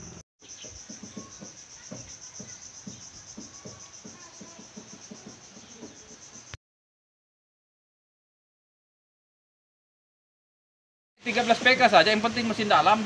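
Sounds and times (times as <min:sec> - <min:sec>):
insects trilling: 0:00.0 - 0:06.6.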